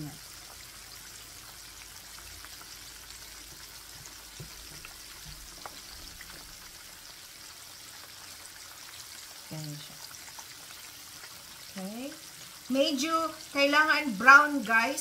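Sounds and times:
chicken deep-frying in oil: 0.0s - 15.0s.

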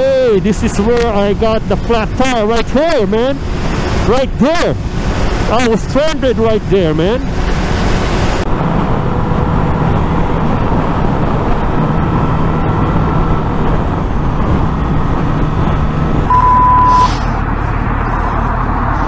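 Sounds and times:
wind and road noise: 0.0s - 19.0s
high beep: 16.3s - 17.1s.

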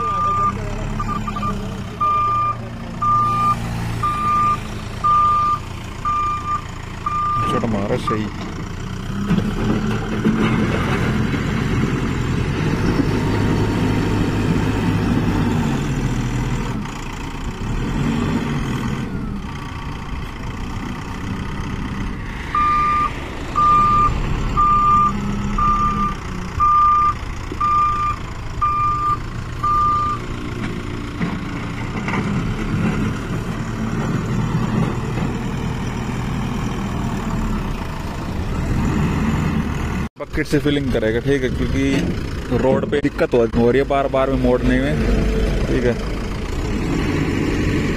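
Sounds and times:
diesel engine under load: 0.0s - 47.9s
reversing alarm beeps: 0.1s - 8.3s, 22.6s - 30.2s.

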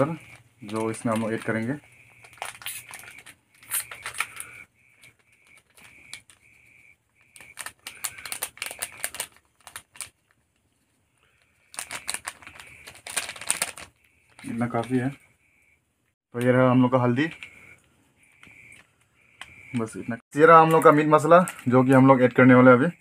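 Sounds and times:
plastic packet crinkling: 0.0s - 6.6s, 7.2s - 10.8s, 11.6s - 15.1s, 20.5s - 22.2s.

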